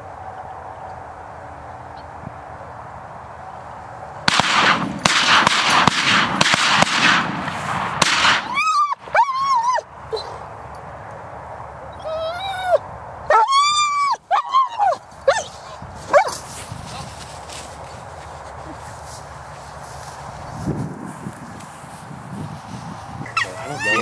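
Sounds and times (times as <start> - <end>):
dog whining: 8.5 - 10.4, 11.9 - 16.4, 23.3 - 24.0.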